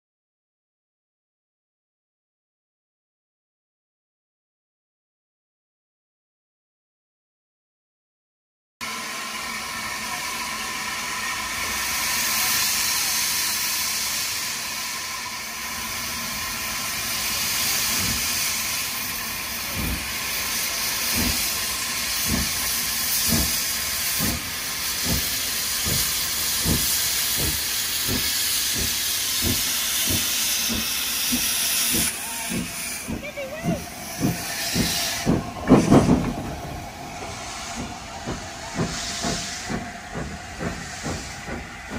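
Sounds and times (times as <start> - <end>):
steam locomotive exhaust chuffs: 8.8 - 41.9
steam hissing from drain cocks: 8.9 - 41.9.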